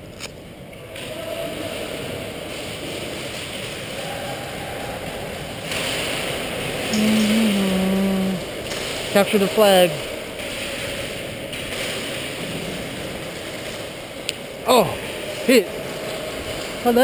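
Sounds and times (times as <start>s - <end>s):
man calling out: 7.0s - 8.4s, 14.6s - 15.7s.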